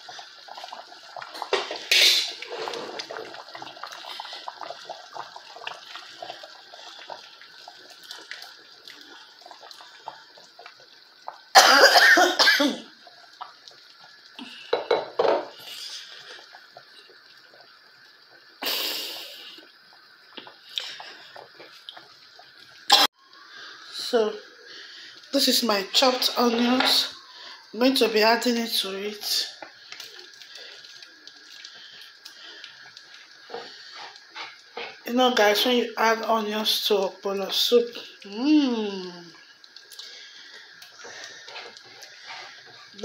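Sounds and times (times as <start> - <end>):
soup boiling and bubbling: 0.0 - 43.0
person coughing: 11.6 - 12.9.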